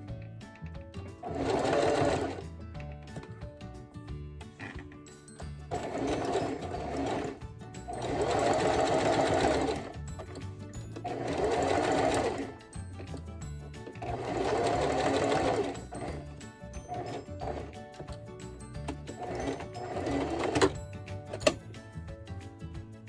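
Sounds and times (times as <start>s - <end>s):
electric sewing machine stitching: 1.2s - 2.5s, 5.7s - 13.2s, 13.8s - 18.1s, 18.7s - 21.6s.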